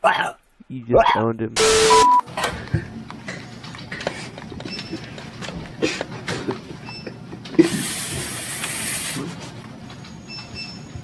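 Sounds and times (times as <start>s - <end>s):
loud hiss of breath: 7.6s - 9.3s.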